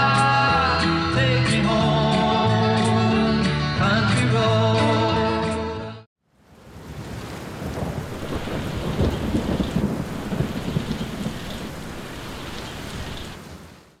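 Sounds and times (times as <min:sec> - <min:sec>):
rain on street: 0:06.2 - 0:14.0.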